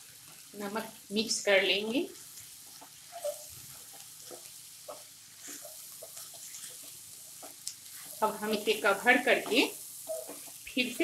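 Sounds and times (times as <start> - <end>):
vegetables sizzling faintly: 0.0 - 11.0
spatula scraping and tapping pan: 2.7 - 10.8.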